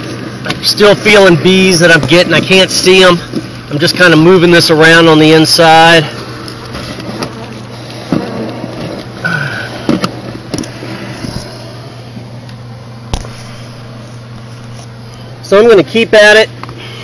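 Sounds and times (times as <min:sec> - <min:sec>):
vacuum humming: 0:00.0 - 0:17.0.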